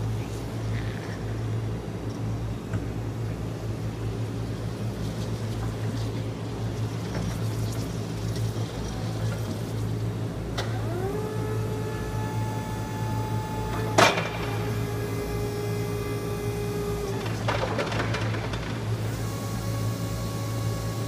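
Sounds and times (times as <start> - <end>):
steady low hum: 0.0 - 21.0
hydraulic pump motor whine: 8.9 - 21.0.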